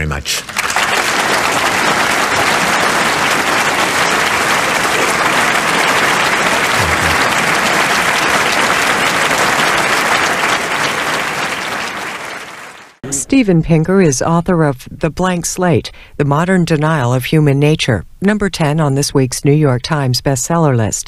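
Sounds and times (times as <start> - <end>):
audience applauding: 0.3 - 13.0.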